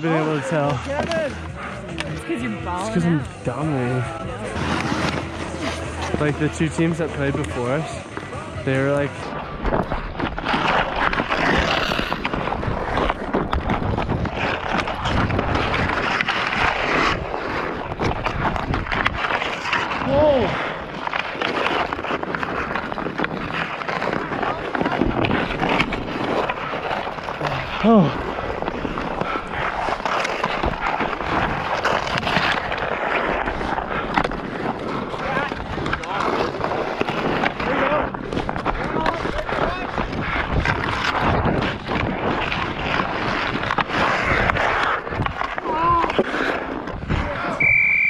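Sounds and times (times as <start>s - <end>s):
skate blades scraping ice: 0.0s - 48.0s
sticks clacking on puck: 0.3s - 2.2s, 20.9s - 47.0s.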